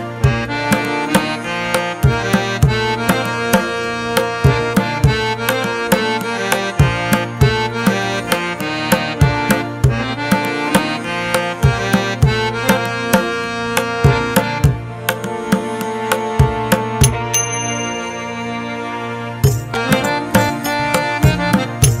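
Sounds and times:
sustained melody: 0:00.0 - 0:22.0
drum strikes: 0:14.1 - 0:18.4, 0:19.4 - 0:22.0.

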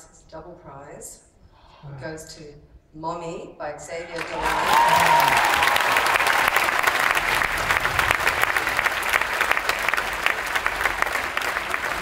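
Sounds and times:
large audience applauding: 0:04.1 - 0:12.0.

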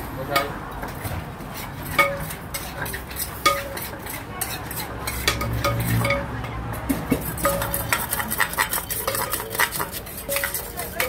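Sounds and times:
pestle knocking in clay mortar: 0:06.8 - 0:11.0.

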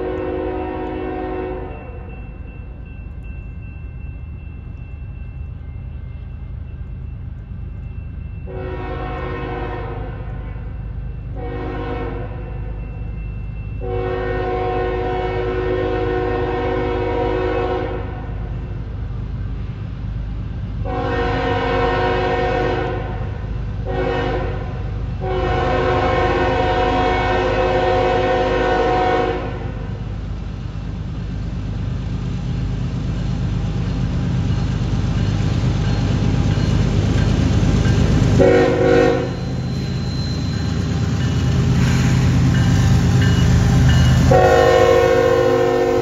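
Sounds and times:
locomotive horn blasts: 0:00.0 - 0:02.0, 0:08.5 - 0:10.8, 0:11.4 - 0:12.6, 0:13.8 - 0:18.4, 0:20.9 - 0:29.9, 0:38.4 - 0:39.6, 0:44.2 - 0:46.0
locomotive rumble: 0:00.0 - 0:46.0.

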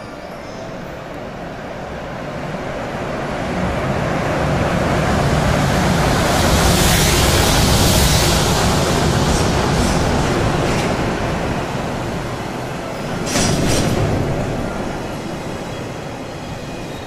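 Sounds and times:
freight train passing: 0:00.0 - 0:17.0.

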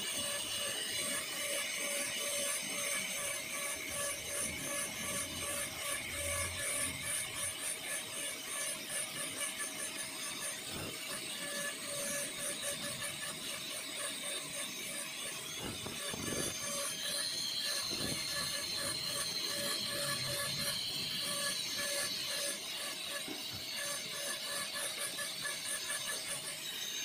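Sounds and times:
dental drill whining and grinding: 0:00.0 - 0:27.0.

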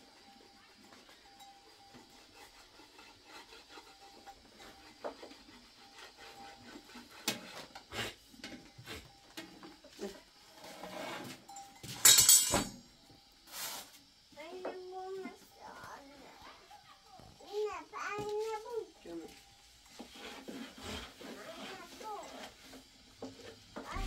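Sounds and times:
loud rasping scrape: 0:01.9 - 0:08.3, 0:10.5 - 0:11.4, 0:19.9 - 0:22.8
rolling pin on wooden board: 0:02.2 - 0:08.0, 0:19.3 - 0:24.0.

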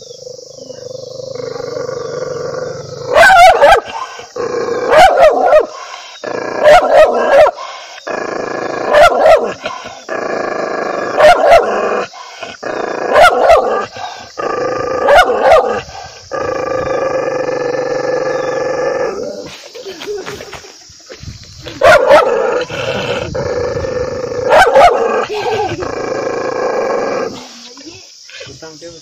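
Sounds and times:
dog growling: 0:00.0 - 0:19.5, 0:21.8 - 0:27.6
dog barking: 0:03.1 - 0:04.2, 0:04.9 - 0:05.8, 0:06.6 - 0:07.7, 0:08.9 - 0:10.0, 0:11.2 - 0:12.4, 0:13.1 - 0:14.2, 0:15.0 - 0:15.8, 0:21.8 - 0:22.4, 0:24.5 - 0:25.2.

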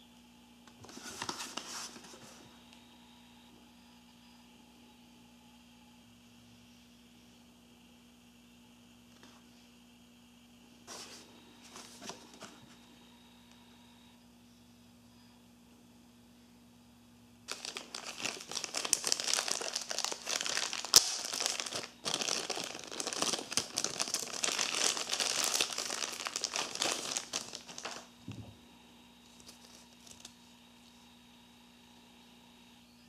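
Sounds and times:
plastic bag crinkling: 0:17.5 - 0:28.1.

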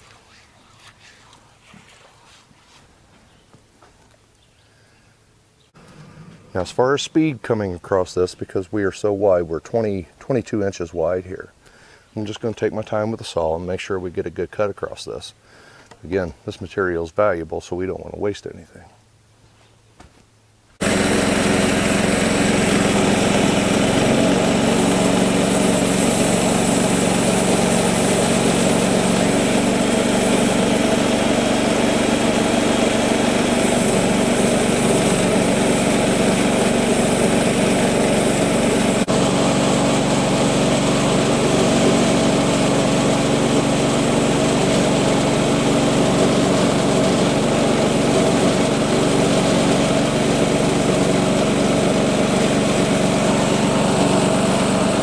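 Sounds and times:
bandsaw mill cutting wood: 0:20.8 - 0:55.0.

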